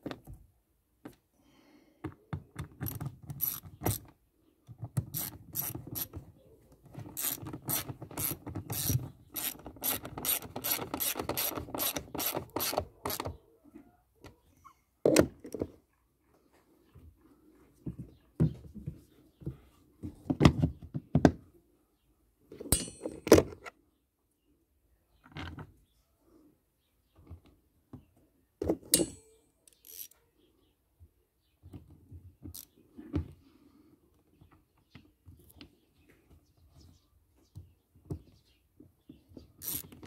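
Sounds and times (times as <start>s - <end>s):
ratchet wrench clicking: 3.4s - 4.0s, 5.1s - 6.1s, 7.2s - 13.2s, 29.0s - 30.2s, 39.6s - 39.8s.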